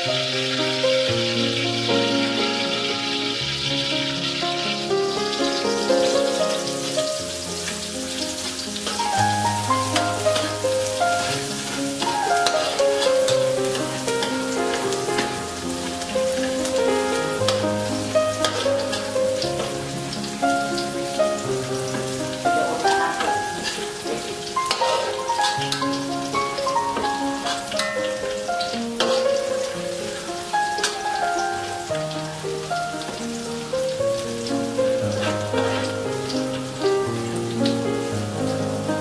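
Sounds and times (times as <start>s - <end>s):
garlic sizzling in hot oil: 0.0s - 39.0s
spatula scraping and tapping pan: 29.0s - 29.2s.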